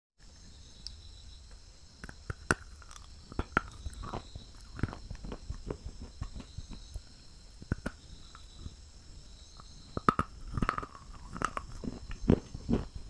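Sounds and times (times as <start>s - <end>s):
crunching: 0.8s - 13.0s
teeth biting brittle stick: 2.0s - 8.7s, 10.0s - 12.9s.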